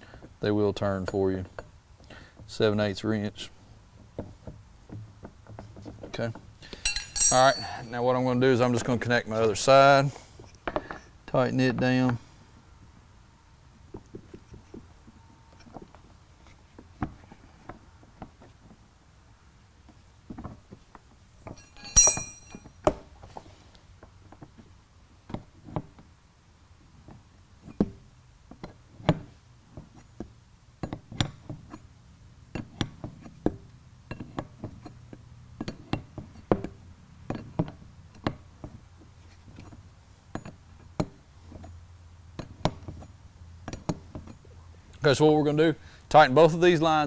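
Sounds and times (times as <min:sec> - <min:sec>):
ringing metallic clink: 0:06.7 - 0:08.0, 0:21.5 - 0:22.8.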